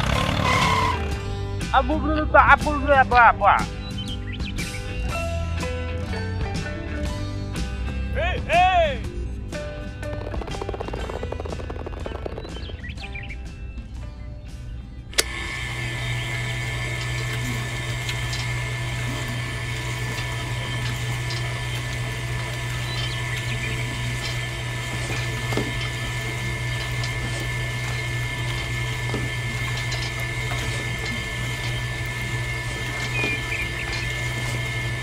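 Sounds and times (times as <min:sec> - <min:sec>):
small electric motor humming: 0:00.0 - 0:01.2, 0:15.2 - 0:35.0.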